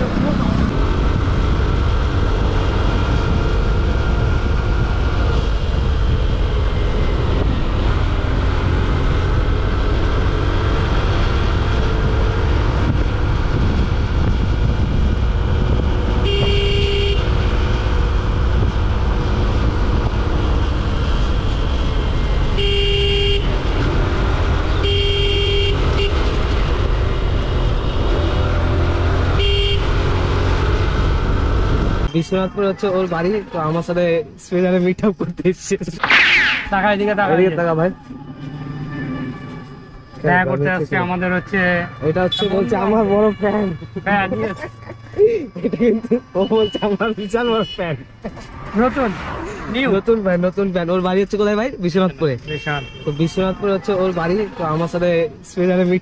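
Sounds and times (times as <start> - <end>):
motorcycle engine rumble: 0.0 - 9.8
wind: 0.0 - 56.0
horn honking: 16.2 - 17.5, 22.5 - 23.8, 24.7 - 26.6, 29.3 - 30.4, 37.6 - 44.8, 46.4 - 48.2, 52.5 - 53.9.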